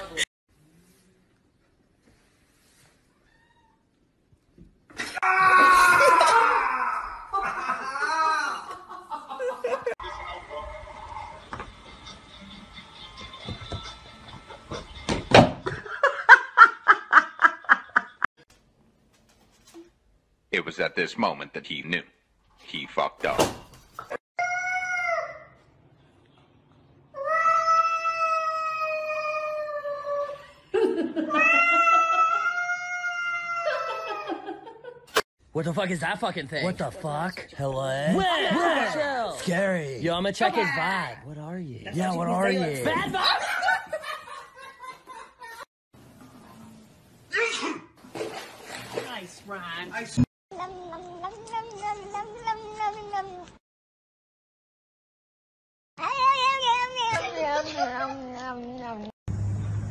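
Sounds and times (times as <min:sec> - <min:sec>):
cat yowling: 0:31.3 - 0:34.3.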